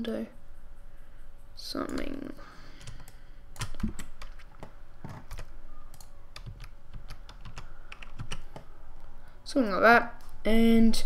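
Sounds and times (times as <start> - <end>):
computer keyboard keys clicking: 1.8 - 2.2, 2.8 - 8.7.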